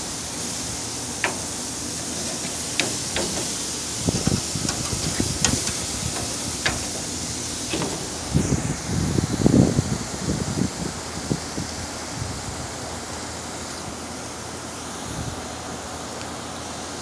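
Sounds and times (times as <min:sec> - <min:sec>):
steaks sizzling on grill: 0:00.0 - 0:09.2
metal tongs clicking: 0:04.2 - 0:08.2.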